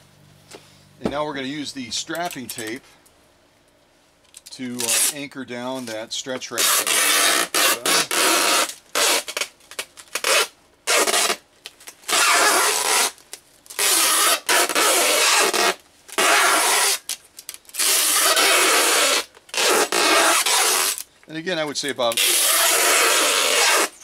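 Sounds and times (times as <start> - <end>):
tape screeching off dispenser: 4.7 - 21.1, 22.0 - 24.0.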